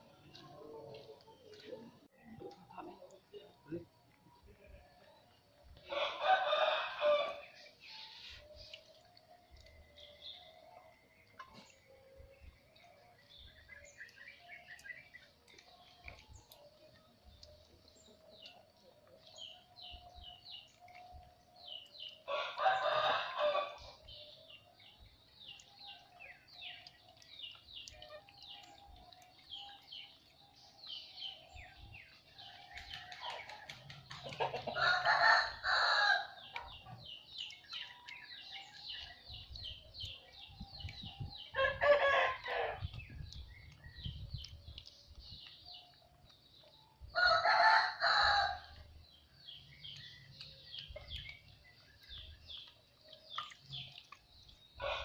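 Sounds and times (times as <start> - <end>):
small birds chirping: 0.0 - 55.0
rooster crowing: 5.9 - 7.5, 47.2 - 48.6.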